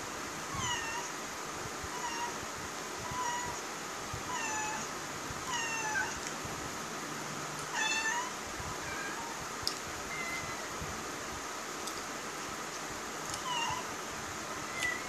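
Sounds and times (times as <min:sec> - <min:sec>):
cat meowing: 0:00.5 - 0:01.1, 0:02.0 - 0:02.4, 0:03.1 - 0:03.6, 0:04.3 - 0:04.9, 0:05.5 - 0:06.2, 0:07.7 - 0:09.4, 0:10.1 - 0:10.7, 0:13.3 - 0:13.9, 0:14.7 - 0:15.0.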